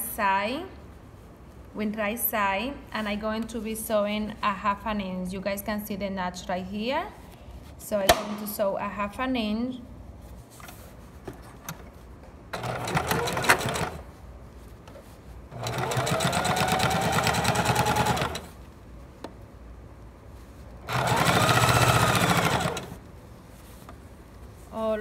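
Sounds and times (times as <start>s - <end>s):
electric sewing machine stitching: 12.6s - 14.0s, 15.5s - 18.5s, 20.8s - 23.0s.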